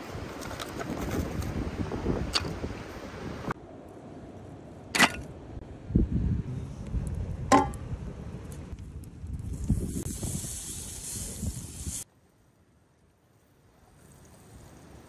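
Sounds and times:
wind rumble on microphone: 0.0s - 3.6s, 5.6s - 12.0s.

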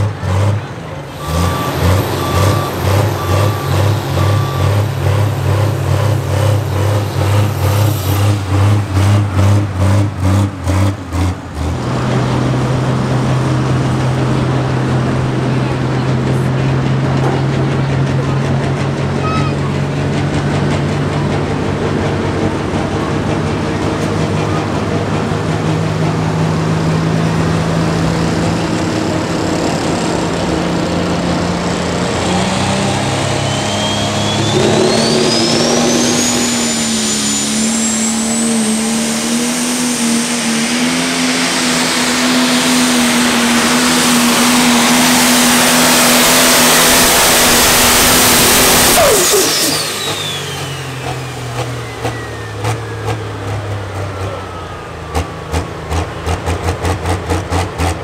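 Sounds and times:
diesel tractor engine revving: 0.0s - 58.0s
turbo whistle: 1.1s - 8.4s, 32.9s - 38.3s, 47.1s - 51.0s.

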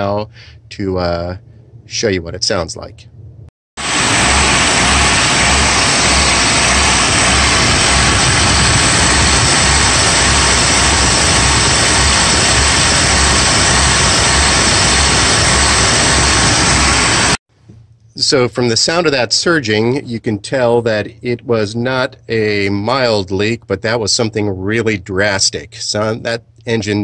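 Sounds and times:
car engine running and surging: 3.8s - 17.4s.

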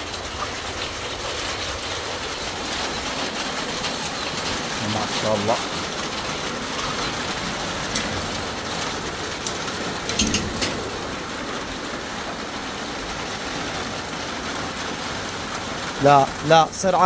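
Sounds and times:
steady rain: 0.0s - 17.0s.

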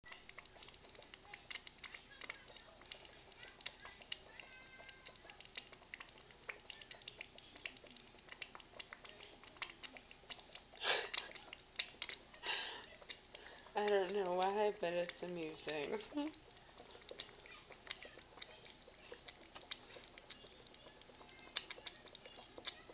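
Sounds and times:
thick gravy bubbling: 0.0s - 22.9s.

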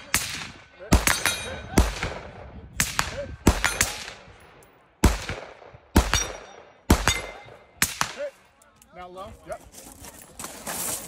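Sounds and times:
gunshots with echoing tail: 0.0s - 4.4s, 5.0s - 8.2s.

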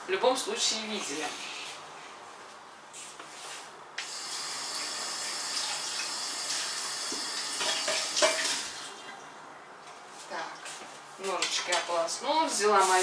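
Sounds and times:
tap water running into sink: 4.0s - 8.9s.

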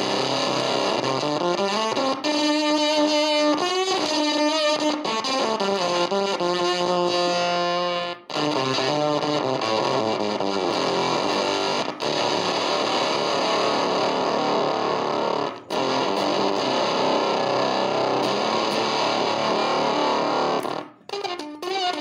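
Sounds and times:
distorted fuzz electric guitar: 0.0s - 22.0s.

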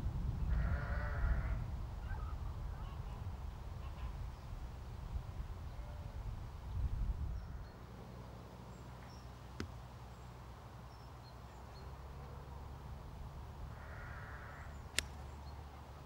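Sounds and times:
wind rumble on microphone: 0.0s - 7.8s
sharp click: 14.9s - 15.2s.

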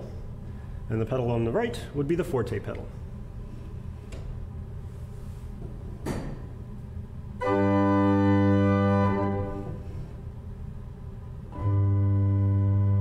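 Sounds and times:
pipe organ chords: 7.4s - 10.2s, 11.5s - 13.0s.

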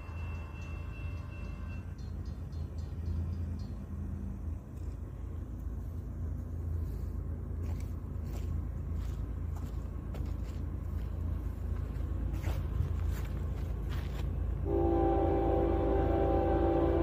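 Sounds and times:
locomotive air horn: 14.6s - 17.0s.

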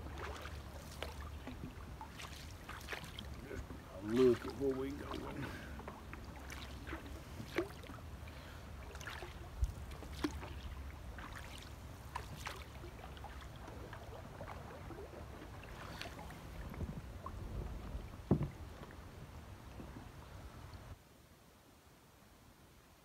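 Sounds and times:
paddle strokes in water: 0.0s - 21.0s
paddle knocking against canoe: 0.1s - 8.0s, 15.6s - 19.0s.

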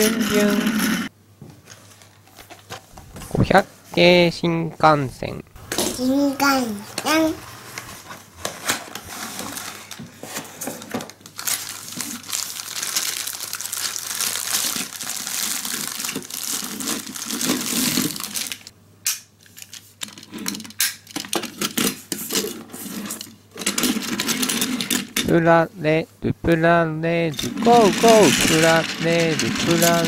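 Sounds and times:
plastic packaging crinkling: 10.8s - 18.7s.

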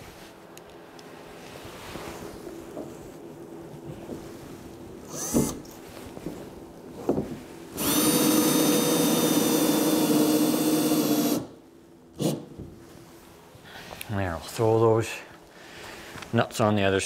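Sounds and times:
cordless drill running: 5.1s - 5.6s, 7.8s - 11.5s.

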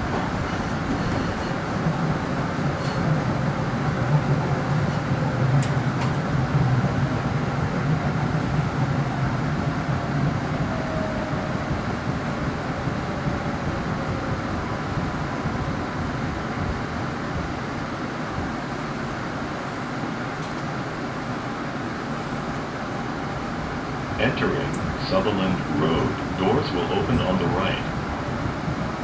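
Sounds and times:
train wheels rumbling on rail: 0.0s - 29.0s.

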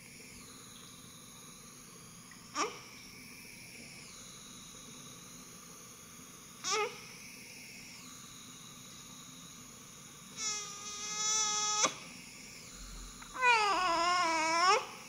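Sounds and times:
baby crying: 13.4s - 15.0s
newborn baby whimpering: 13.4s - 15.0s.

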